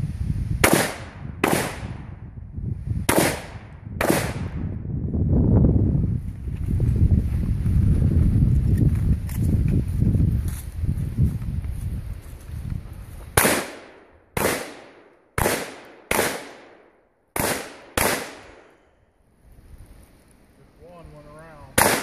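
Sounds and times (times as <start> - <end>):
shotgun shots: 0.6 - 2.1, 3.1 - 4.6, 13.4 - 18.8, 21.8 - 22.0.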